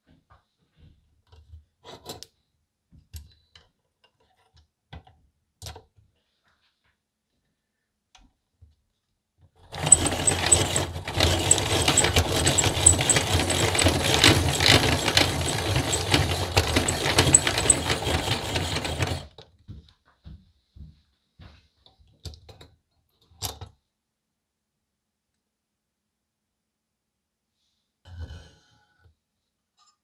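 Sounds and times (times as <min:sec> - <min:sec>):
pencil sharpener grinding: 0:09.7 - 0:19.3.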